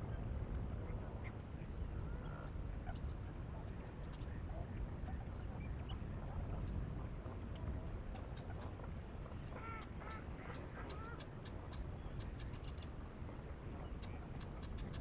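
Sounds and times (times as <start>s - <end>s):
distant bird calls: 0.8s - 15.0s
ducks quacking: 9.4s - 11.6s.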